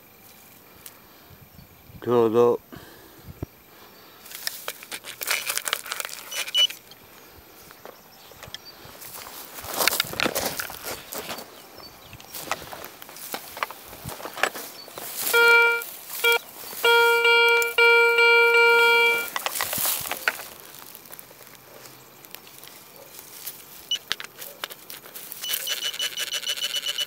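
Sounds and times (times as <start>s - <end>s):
metal detector tone: 6.1s - 7.0s, 14.3s - 20.4s, 23.8s - 27.0s
rapid high-pitched beeping: 6.3s - 7.0s, 15.2s - 19.4s, 25.4s - 27.0s
coil brushing through grass: 12.2s - 17.2s, 19.2s - 25.5s.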